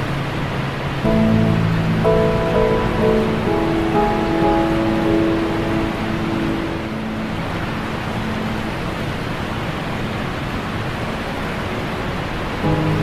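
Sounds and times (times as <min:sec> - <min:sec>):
waterfall rushing: 0:00.8 - 0:13.0
background music: 0:01.0 - 0:09.4, 0:12.6 - 0:13.0.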